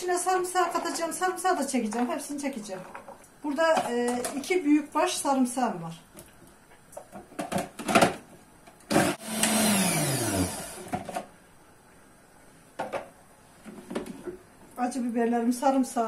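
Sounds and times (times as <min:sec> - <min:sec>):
food processor motor whirring: 0:08.9 - 0:11.1.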